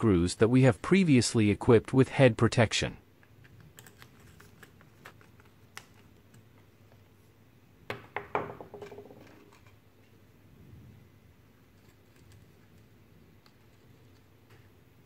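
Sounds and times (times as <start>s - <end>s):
knocks on table: 7.9s - 9.2s.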